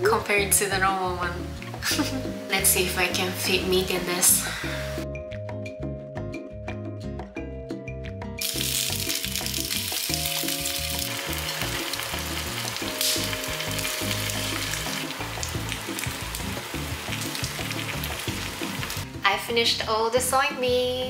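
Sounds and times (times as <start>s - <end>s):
soft background music: 0.0s - 21.0s
food sizzling in frying pan: 8.4s - 19.1s.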